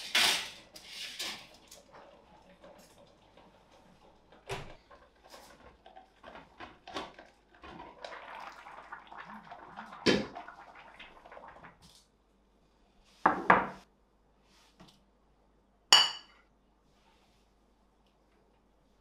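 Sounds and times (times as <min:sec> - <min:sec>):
kitchen knocks and clatters: 0:04.3 - 0:07.8, 0:13.3 - 0:13.9.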